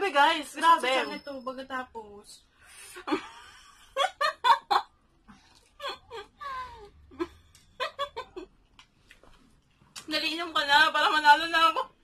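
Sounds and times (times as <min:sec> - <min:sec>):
woman laughing: 0:05.8 - 0:08.5
woman moaning and whimpering: 0:05.9 - 0:07.2.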